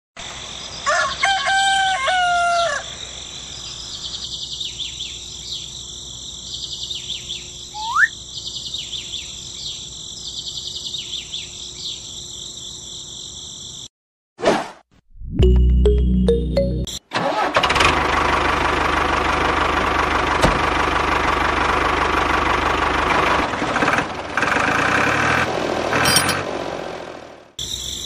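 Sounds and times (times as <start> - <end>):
rooster crowing: 0.8 - 3.0
small birds chirping: 3.0 - 13.8.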